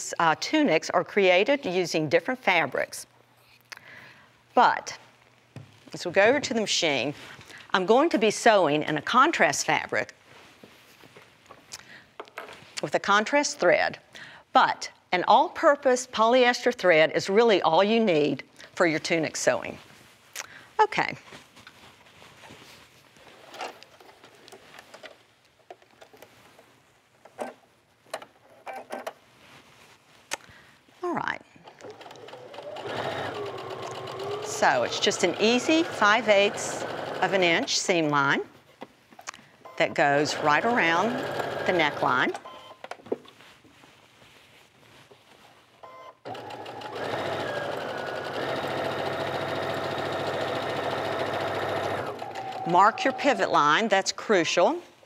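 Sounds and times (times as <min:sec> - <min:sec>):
fabric rustling: 0:10.2 - 0:11.7, 0:19.6 - 0:28.1, 0:29.2 - 0:31.1, 0:43.1 - 0:45.8
sewing machine running: 0:31.8 - 0:37.7, 0:40.2 - 0:42.2, 0:46.3 - 0:53.4.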